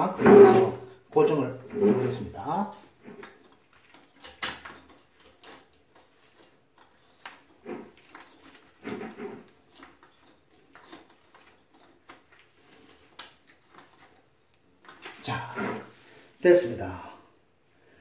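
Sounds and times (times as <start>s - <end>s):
squeaky rubbing: 0.0s - 0.9s, 1.6s - 3.4s.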